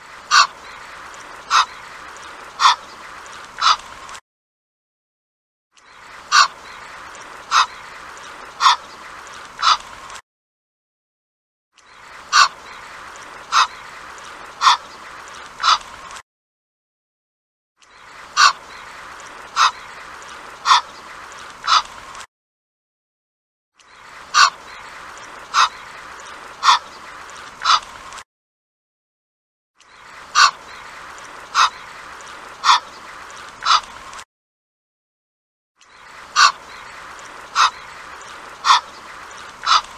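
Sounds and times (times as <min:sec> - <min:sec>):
goose calling: 0:00.3 - 0:01.9, 0:02.5 - 0:03.0, 0:03.6 - 0:03.8, 0:06.3 - 0:08.0, 0:08.6 - 0:08.9, 0:09.6 - 0:09.8, 0:12.3 - 0:12.8, 0:13.5 - 0:13.9, 0:14.6 - 0:14.9, 0:18.4 - 0:18.6, 0:19.4 - 0:19.9, 0:20.6 - 0:21.0, 0:21.6 - 0:21.9, 0:24.4 - 0:24.6, 0:26.6 - 0:27.0, 0:27.6 - 0:27.9, 0:30.3 - 0:30.9, 0:31.5 - 0:31.9, 0:32.6 - 0:33.0, 0:33.6 - 0:33.9, 0:36.3 - 0:36.9, 0:37.5 - 0:39.9.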